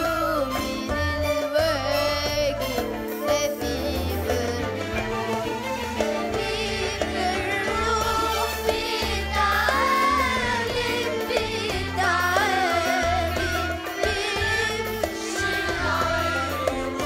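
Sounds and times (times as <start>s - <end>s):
boy singing: 0.0s - 5.1s
keyboard: 0.0s - 17.0s
violin: 0.0s - 17.0s.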